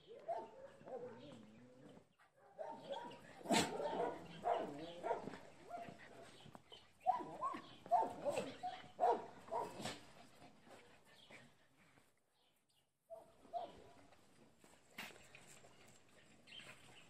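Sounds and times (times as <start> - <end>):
dogs barking and yipping: 0.0 - 10.4.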